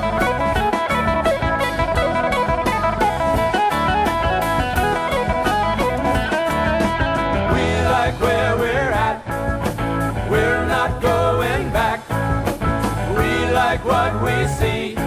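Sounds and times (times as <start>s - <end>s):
guitar-led gospel music: 0.0s - 15.0s
person singing: 7.5s - 9.3s.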